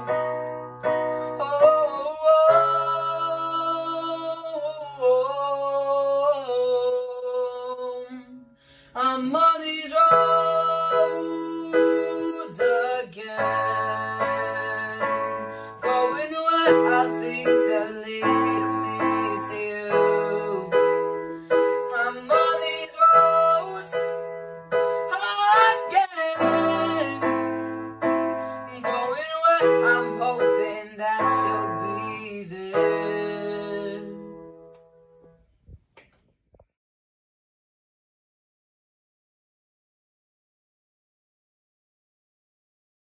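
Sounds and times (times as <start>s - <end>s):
electronic keyboard piano chords: 0.0s - 5.0s, 9.0s - 35.4s.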